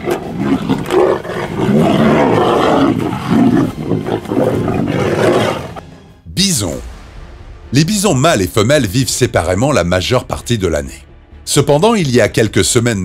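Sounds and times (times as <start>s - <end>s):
tigers roaring: 0.0s - 5.8s.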